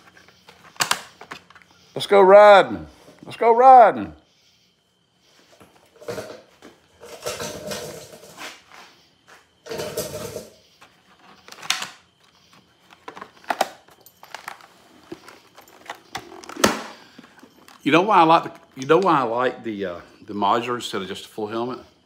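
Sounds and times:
helmet scraping: 7.0s - 11.5s
plastic helmet rustling: 10.1s - 19.0s.

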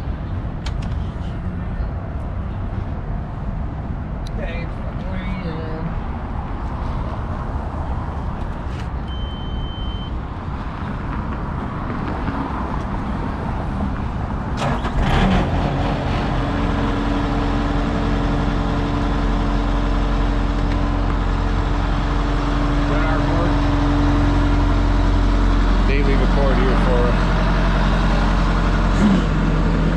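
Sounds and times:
short high beep: 9.1s - 10.2s
diesel engine running: 12.5s - 29.9s.

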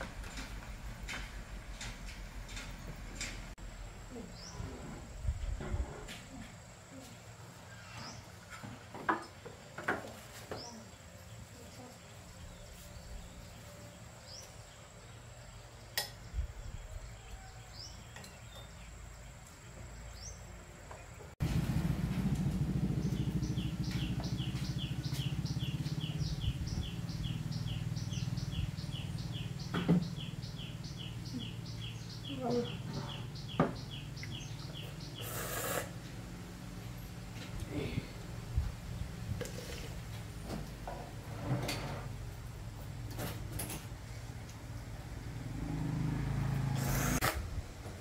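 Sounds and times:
steady low hum: 18.8s - 35.2s.

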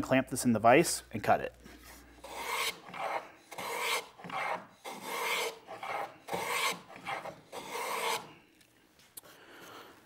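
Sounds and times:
hand plane rasping on wood: 2.2s - 8.3s.

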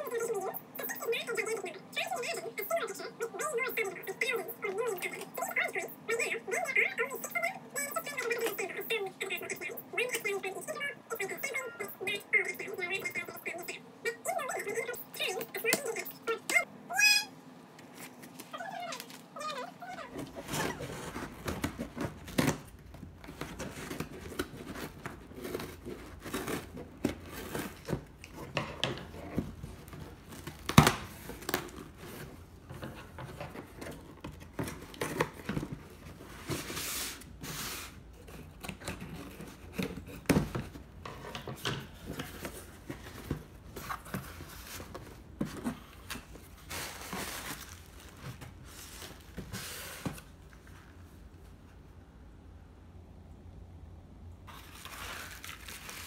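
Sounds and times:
plastic packaging crinkling: 46.2s - 49.4s, 54.5s - 56.0s.

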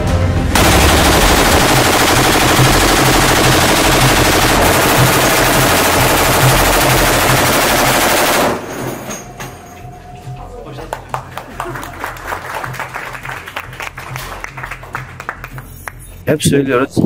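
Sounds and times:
heavy machine gun automatic burst: 0.6s - 9.1s.

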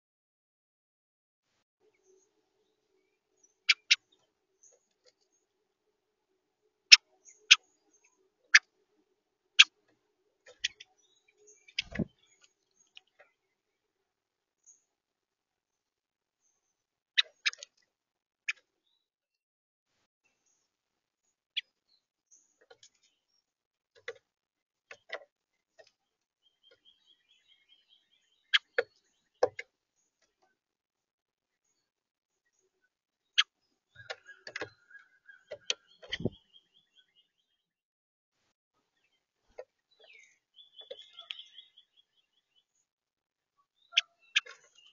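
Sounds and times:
faint high bird twitter: 26.4s - 29.4s, 31.6s - 37.7s, 39.9s - 42.9s, 43.6s - 44.9s.

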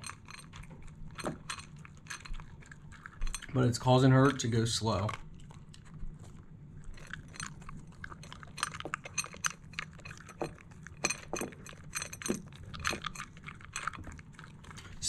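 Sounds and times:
dog crunching dry kibble: 0.0s - 15.0s.

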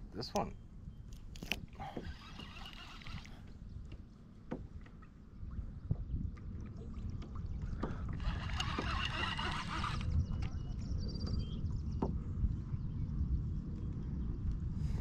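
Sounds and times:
wind buffeting microphone: 0.9s - 15.0s
water slapping kayak hull: 1.4s - 12.6s.

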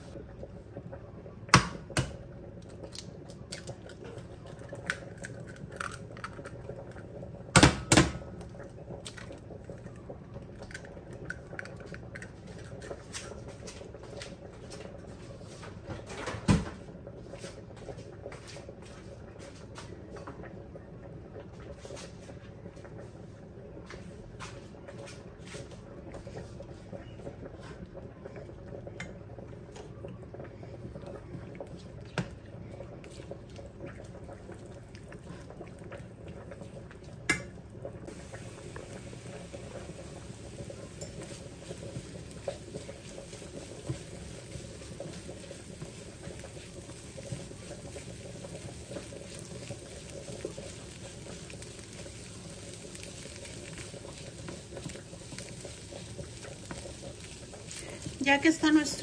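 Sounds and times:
eggs sizzling in a frying pan: 0.0s - 59.0s
lentils boiling in a pot: 0.0s - 59.0s.

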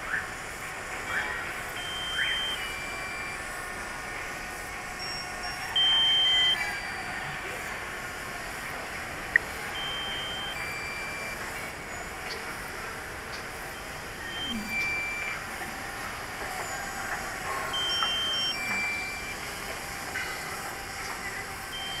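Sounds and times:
short electronic beeps: 1.7s - 3.8s, 5.0s - 7.3s, 9.7s - 12.0s, 14.2s - 15.6s, 16.6s - 19.4s, 20.2s - 22.0s.

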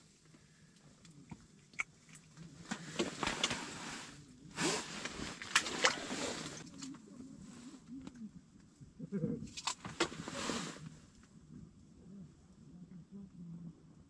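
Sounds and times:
clothing rustling: 2.6s - 7.6s, 9.6s - 11.0s.

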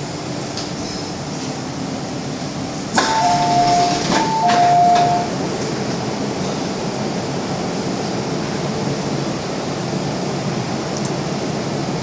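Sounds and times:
ventilation air rushing: 5.3s - 12.0s.

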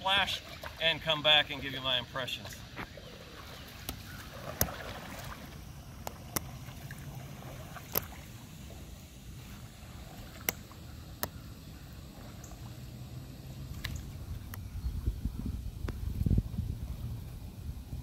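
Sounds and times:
paddle splashing in water: 0.0s - 13.0s.

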